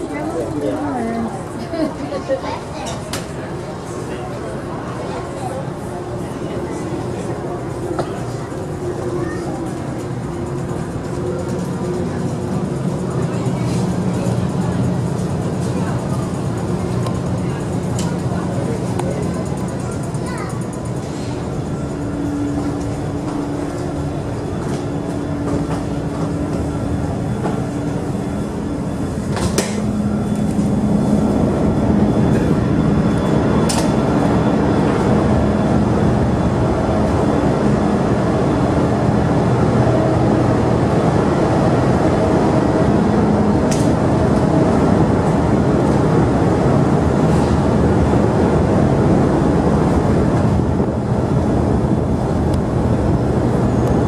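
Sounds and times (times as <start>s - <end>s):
ship engines rumbling: 0.0s - 54.0s.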